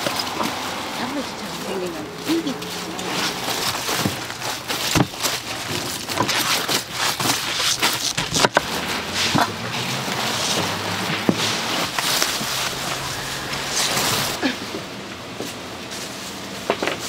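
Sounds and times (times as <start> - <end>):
sharp knocks and clatter: 3.3 - 9.5.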